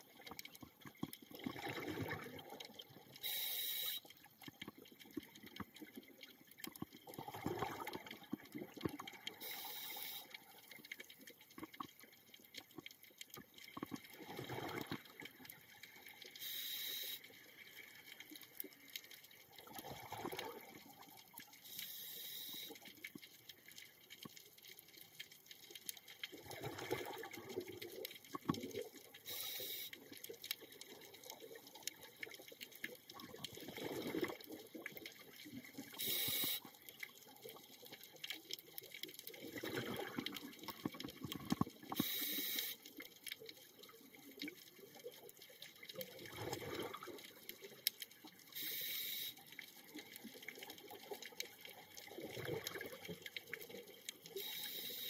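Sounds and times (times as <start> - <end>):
bubbles gurgling: 0.0 - 3.1, 6.8 - 9.3, 13.4 - 15.4, 19.6 - 21.2, 26.3 - 29.0, 31.0 - 36.5, 38.7 - 42.0, 45.8 - 47.7, 50.4 - 54.4
regulator inhale hiss: 3.2 - 4.0, 9.4 - 10.4, 16.4 - 17.3, 21.6 - 22.8, 29.3 - 30.0, 36.0 - 36.7, 42.0 - 42.8, 48.6 - 49.4, 54.4 - 55.0.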